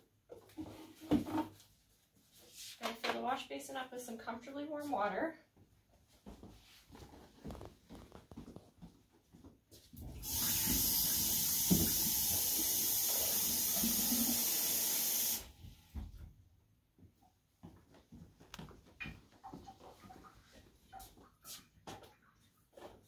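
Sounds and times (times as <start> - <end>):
faucet running into plastic basin: 10.0 - 15.6.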